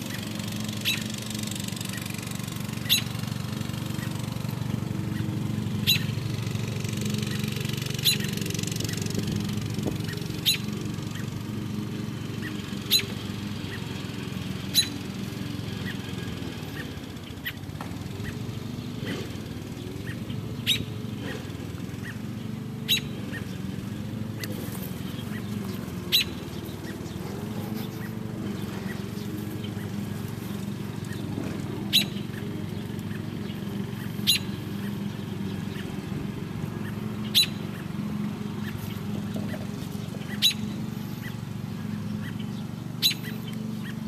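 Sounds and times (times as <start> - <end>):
bird chirping: 0.0 - 1.2, 1.8 - 3.2, 5.0 - 6.3, 7.2 - 9.1, 10.0 - 11.4, 12.4 - 13.9, 14.7 - 15.2, 19.8 - 21.4, 22.0 - 44.0
steady low hum: 0.0 - 44.0.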